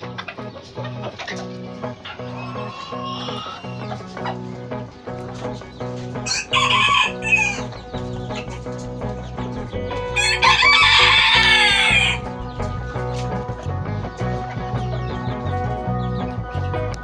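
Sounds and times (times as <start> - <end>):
background music with steady beat: 0.0 - 17.0
rooster crowing: 2.1 - 4.1, 6.2 - 7.7, 10.1 - 12.3.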